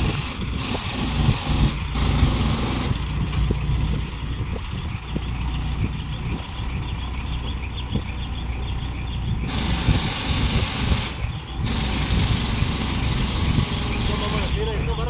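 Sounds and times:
engine rumbling: 0:00.0 - 0:15.0
loud hissing bursts: 0:09.5 - 0:14.6.

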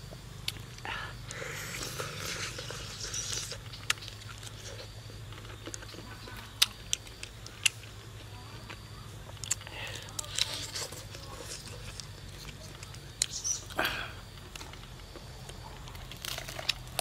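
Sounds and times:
wet lip and teeth clicks: 0:00.4 - 0:04.6, 0:09.3 - 0:09.7
person chewing and smacking: 0:00.4 - 0:17.0.

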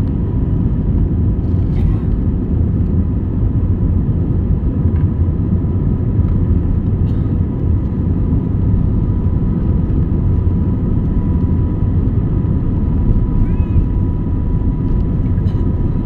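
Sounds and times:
faint steady whine: 0:00.0 - 0:16.0
jet cabin engine rumble: 0:00.0 - 0:16.0.

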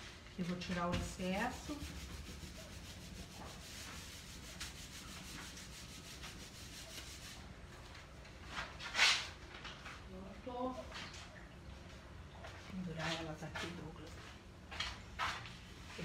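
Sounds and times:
hands rubbing on paper: 0:00.5 - 0:07.5.

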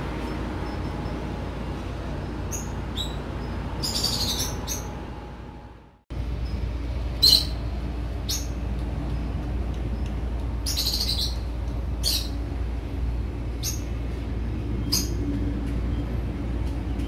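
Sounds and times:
steady low rumble: 0:00.0 - 0:17.0
bird chirping: 0:02.5 - 0:05.0, 0:06.4 - 0:08.6, 0:10.0 - 0:12.4, 0:13.6 - 0:13.9.

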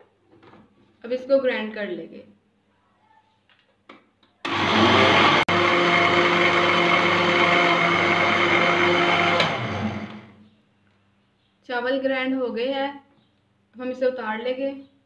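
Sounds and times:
blender motor whining: 0:04.5 - 0:10.4.

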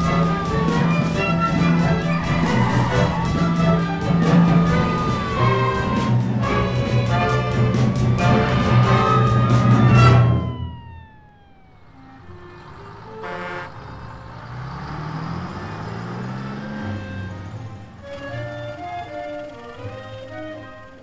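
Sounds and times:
orchestral music: 0:00.0 - 0:11.0, 0:16.4 - 0:21.0
low engine note: 0:00.0 - 0:21.0
vehicle passing: 0:00.0 - 0:21.0
car horn honk: 0:13.1 - 0:14.0.

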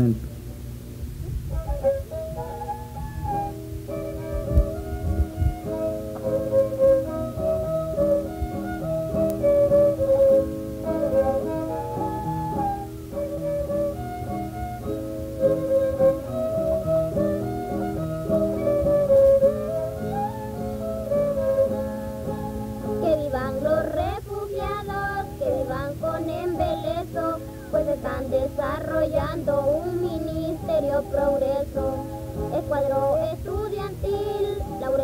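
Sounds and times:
plucked guitar: 0:00.0 - 0:35.0
flute-like melody: 0:01.4 - 0:24.0, 0:24.9 - 0:33.2, 0:34.2 - 0:35.0
high voices singing: 0:22.2 - 0:35.0.

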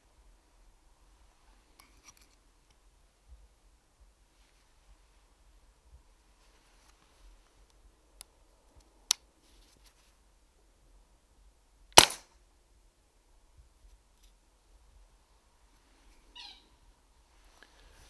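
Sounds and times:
air rifle shot: 0:12.0 - 0:12.3.

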